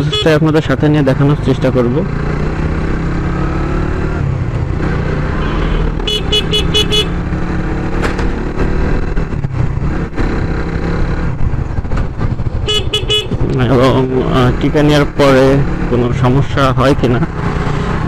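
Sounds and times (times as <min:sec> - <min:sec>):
motorcycle engine running: 0:00.8 - 0:18.0
vehicle horn short beeps: 0:05.4 - 0:07.2.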